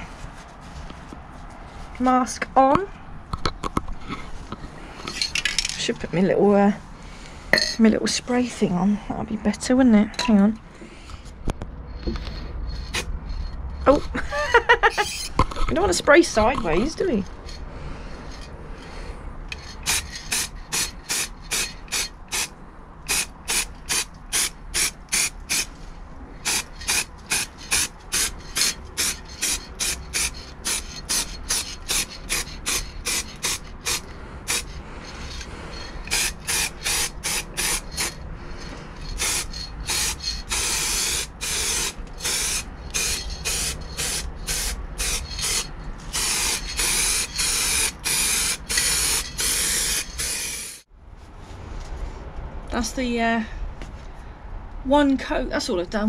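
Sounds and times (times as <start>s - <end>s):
aerosol spray paint hissing: 19.8s - 22.5s, 23.1s - 25.7s, 26.4s - 34.8s, 36.1s - 38.2s, 39.1s - 50.8s.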